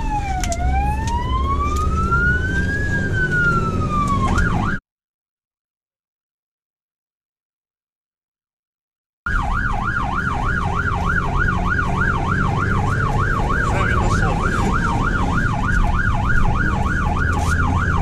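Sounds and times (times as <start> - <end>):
fire engine siren yelping: 0.0 - 4.8, 9.3 - 18.0
truck engine and road rumble: 0.0 - 4.8, 9.3 - 18.0.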